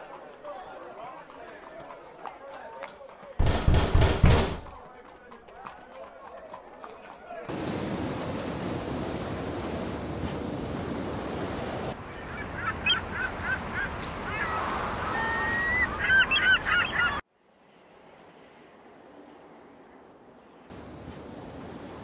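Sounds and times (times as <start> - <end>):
wind: 0.0 - 22.0
surf: 7.5 - 17.2
geese honking: 12.0 - 17.2.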